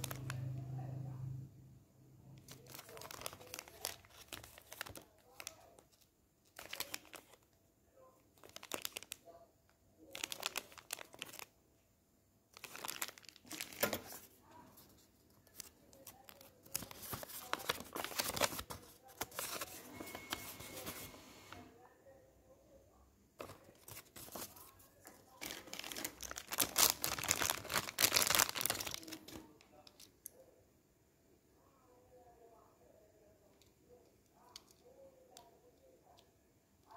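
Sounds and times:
plastic bag crinkling and tearing: 0.0 - 0.4, 2.4 - 7.4, 8.4 - 9.2, 10.1 - 11.5, 12.5 - 14.3, 15.5 - 21.0, 23.4 - 24.7, 25.3 - 30.1
paper and cardboard rustling: 12.6 - 21.2, 23.4 - 29.4.

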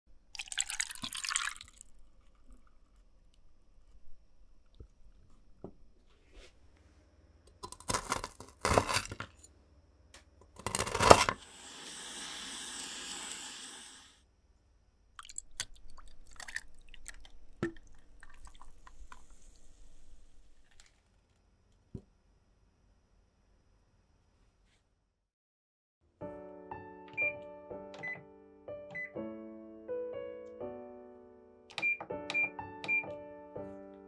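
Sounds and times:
tonic fizzing over ice: 0.4 - 2.6, 15.2 - 20.3
granola bar crunching: 7.5 - 9.2, 10.6 - 11.4.

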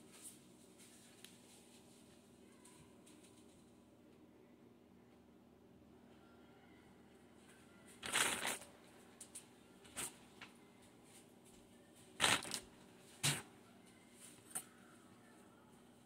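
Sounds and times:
rustling and clatter of kitchen things: 0.0 - 3.8, 7.4 - 14.8.

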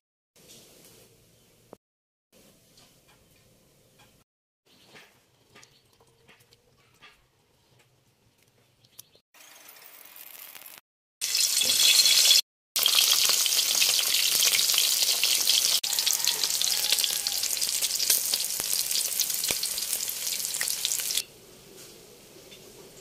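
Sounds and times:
food sizzling in a hot pan: 9.4 - 21.3.

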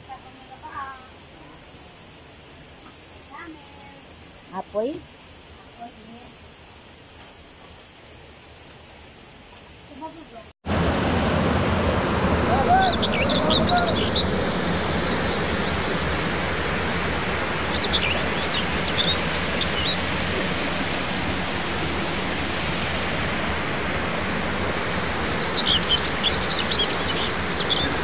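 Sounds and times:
steady rushing noise: 10.6 - 28.0
birds chirping: 12.7 - 15.8, 17.0 - 20.8, 25.2 - 28.0.

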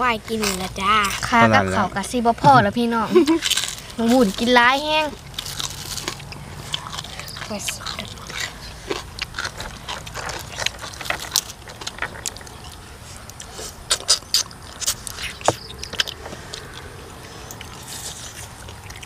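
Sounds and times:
sharp clicks and crackles: 3.4 - 16.8
wet chewing and lip smacks: 5.2 - 19.0.

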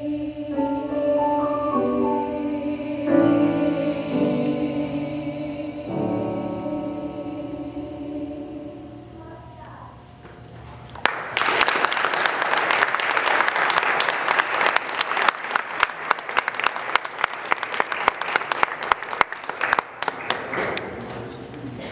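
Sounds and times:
audience applauding: 11.0 - 21.0.

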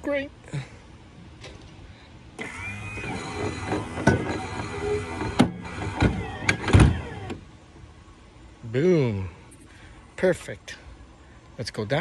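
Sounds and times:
anchor winch motor hum: 2.4 - 7.4.

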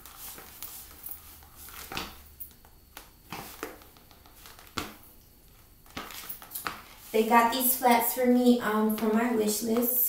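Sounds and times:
shoes tapping on tile floor: 1.7 - 7.0.

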